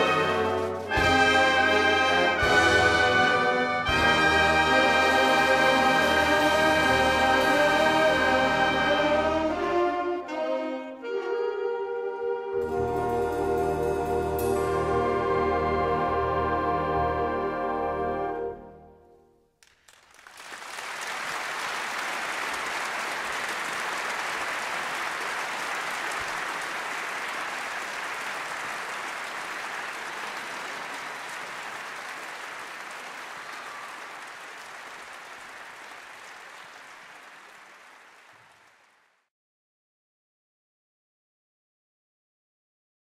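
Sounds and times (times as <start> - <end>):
audience applause: 0.0 - 8.8, 19.6 - 39.3.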